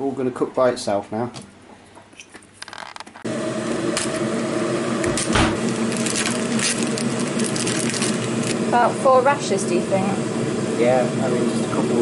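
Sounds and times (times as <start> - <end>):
steady motor hum: 3.3 - 12.0
low thump: 5.1 - 5.7
plastic crinkling: 5.2 - 8.6.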